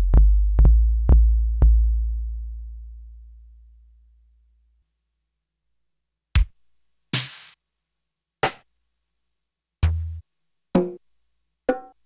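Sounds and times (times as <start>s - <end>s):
drum machine hits: 7.2s - 7.6s.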